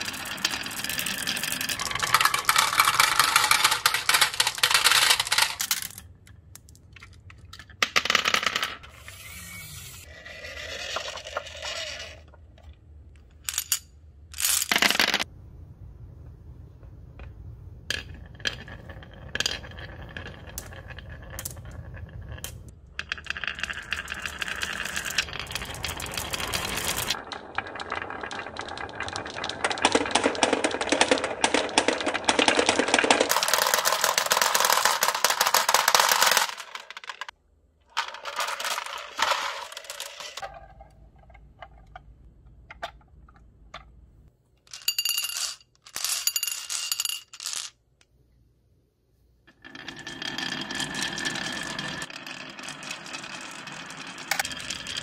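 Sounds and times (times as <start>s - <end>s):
marbles rattling down wooden track: 0.0s - 6.0s, 17.9s - 37.3s, 38.0s - 40.8s, 44.7s - 47.7s, 49.5s - 55.0s.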